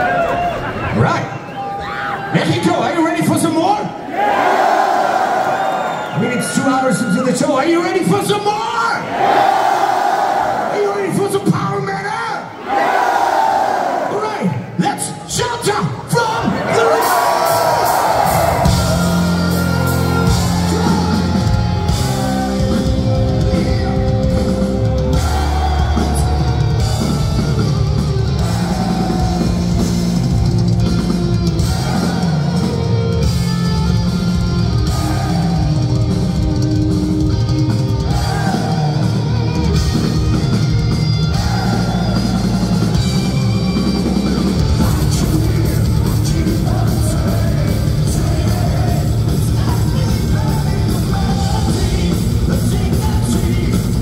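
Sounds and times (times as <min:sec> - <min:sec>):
heavy metal band playing: 0:15.3 - 0:54.0.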